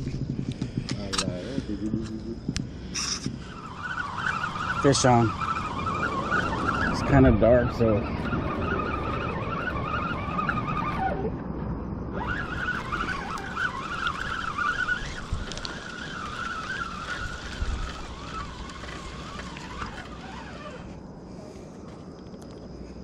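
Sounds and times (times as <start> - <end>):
wind rumbling on microphone: 0.0 - 23.0
fishing reel whirring: 2.8 - 11.3, 12.1 - 21.0.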